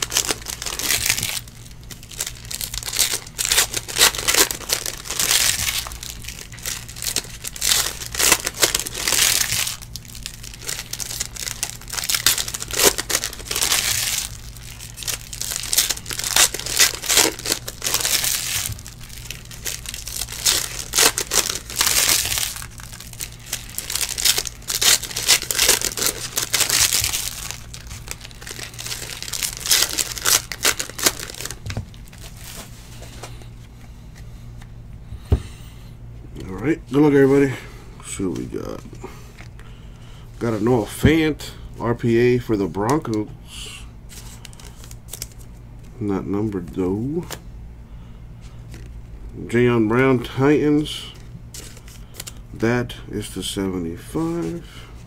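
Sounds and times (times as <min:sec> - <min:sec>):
foil wrappers crinkling and tearing: 0:00.0 - 0:33.6, 0:44.1 - 0:45.6, 0:50.2 - 0:53.0.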